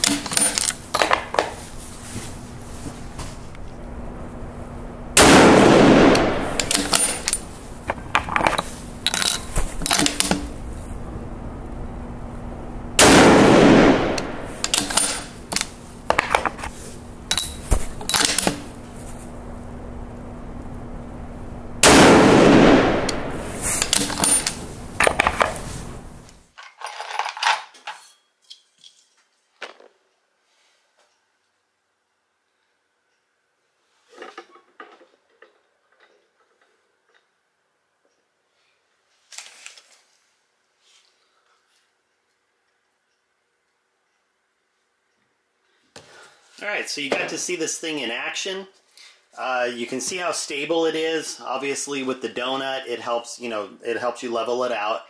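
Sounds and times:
rifle shots echoing: 5.2s - 7.4s, 13.0s - 15.4s, 21.8s - 24.3s
sharp cracks and clicks: 5.2s - 10.6s, 13.0s - 16.7s, 21.8s - 25.6s.

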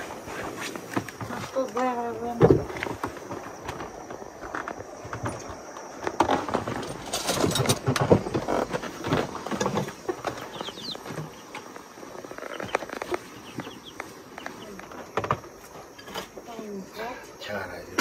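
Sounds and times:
household things knocking and rustling: 0.3s - 16.5s
bird chirps: 9.8s - 15.0s.

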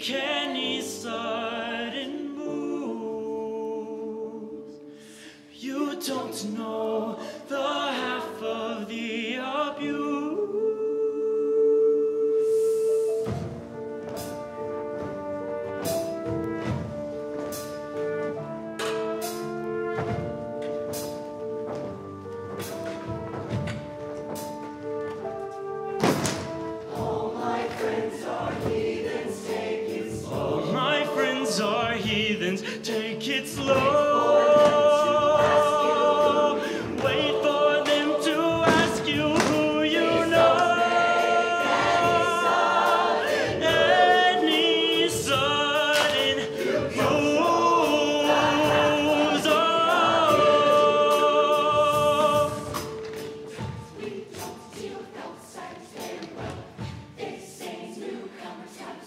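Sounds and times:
choir singing in harmony: 0.0s - 59.0s
live band accompaniment: 12.3s - 55.3s.

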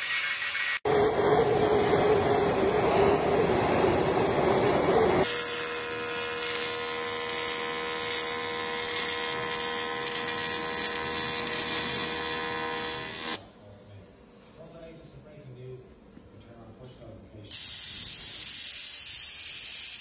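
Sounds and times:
welding arc buzz and hiss: 0.0s - 13.4s, 17.5s - 20.0s.

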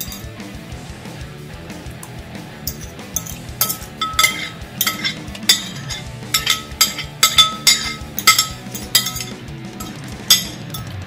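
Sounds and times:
cutlery clinking on ceramic bowl: 0.0s - 0.3s, 2.7s - 11.0s
music playing: 0.0s - 11.0s.

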